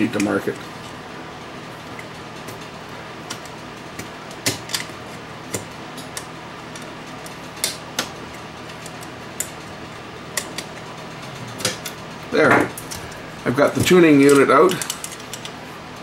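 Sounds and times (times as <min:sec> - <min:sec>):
heater fan hum: 0:00.0 - 0:16.0
pliers clicking on metal chassis: 0:13.8 - 0:15.6.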